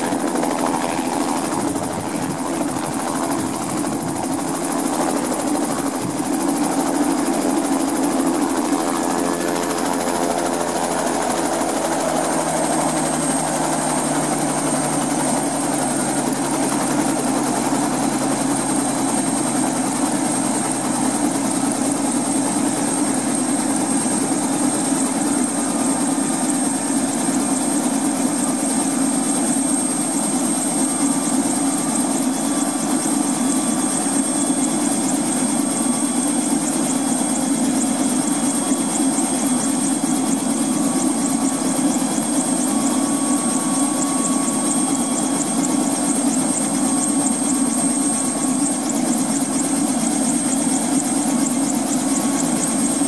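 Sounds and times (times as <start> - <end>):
high turbine whine: 0.0 - 28.0
helicopter idling: 0.0 - 53.0.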